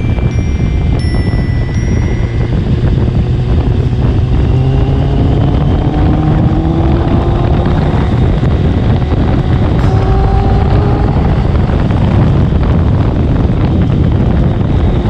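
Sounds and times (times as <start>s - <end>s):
motorcycle engine accelerating: 0.0s - 15.0s
wind rushing over microphone: 0.0s - 15.0s.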